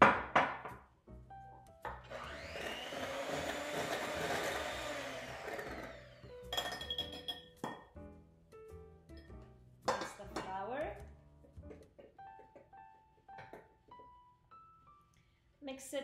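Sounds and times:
electric hand mixer running: 2.0s - 6.4s
metal bowl clinking: 6.5s - 7.9s, 9.9s - 10.7s.

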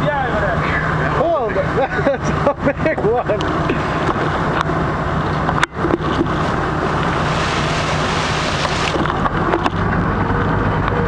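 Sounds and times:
boat engine humming: 0.0s - 11.0s
wind and water hiss: 3.5s - 9.6s.

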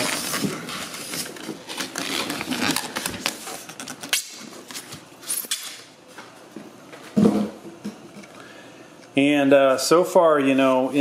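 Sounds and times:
plastic packaging crinkling: 0.0s - 5.8s.

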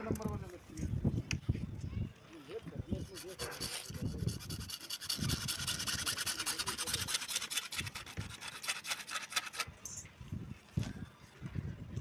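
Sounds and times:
hacksaw sawing plastic pipe: 3.0s - 9.7s.

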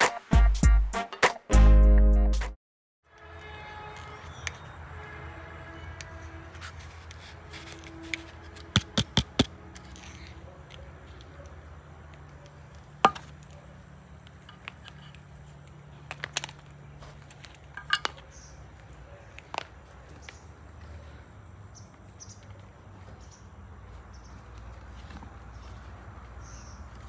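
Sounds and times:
clicks and taps on concrete: 8.1s - 20.4s.

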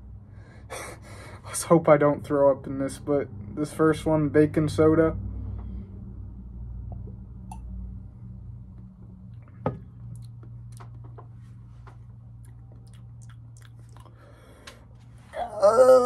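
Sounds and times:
low hum: 0.0s - 16.0s
lip-smacking mouth clicks: 10.1s - 11.1s, 12.4s - 14.8s.

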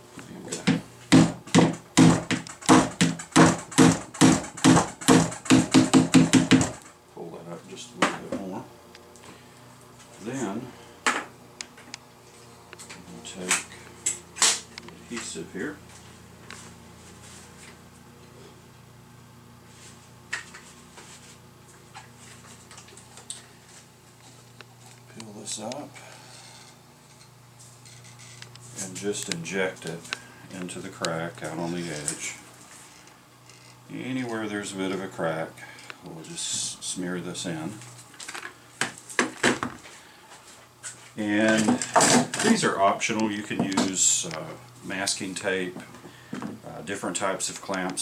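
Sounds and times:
steady low hum: 0.0s - 48.0s
hammer knocking on wood: 0.6s - 6.8s.

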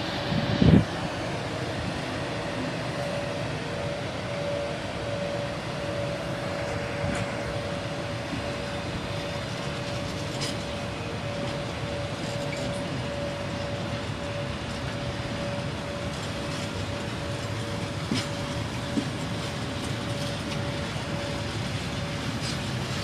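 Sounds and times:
freight train rumble: 0.0s - 23.0s
locomotive hum: 0.0s - 23.0s.

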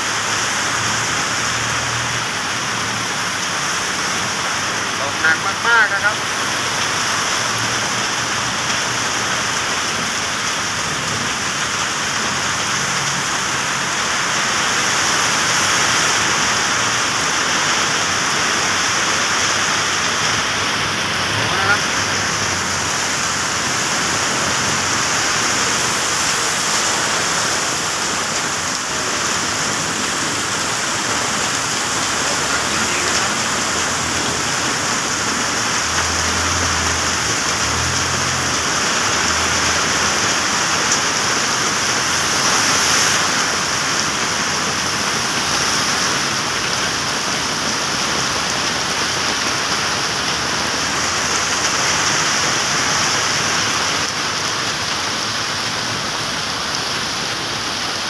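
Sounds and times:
heavy rain pouring on road: 0.0s - 58.0s.

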